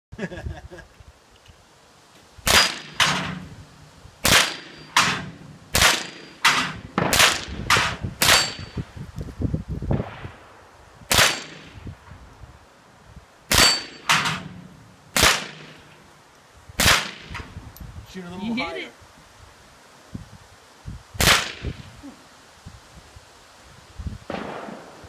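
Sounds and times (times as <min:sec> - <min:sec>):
gunshots: 0:02.5 - 0:03.4, 0:04.2 - 0:08.7, 0:11.1 - 0:11.8, 0:13.5 - 0:14.5, 0:15.1 - 0:15.8, 0:16.8 - 0:17.4, 0:21.2 - 0:21.7, 0:24.3 - 0:25.0
bullet ringing on steel target: 0:08.3 - 0:08.8, 0:13.6 - 0:14.1.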